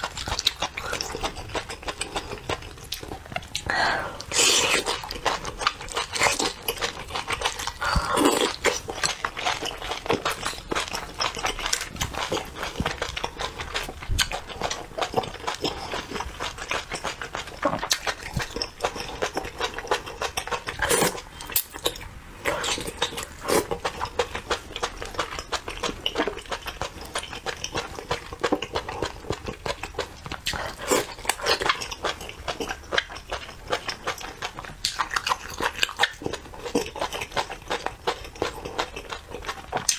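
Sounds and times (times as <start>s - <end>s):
slurping: 0.0s - 24.1s
wet chewing: 0.0s - 39.9s.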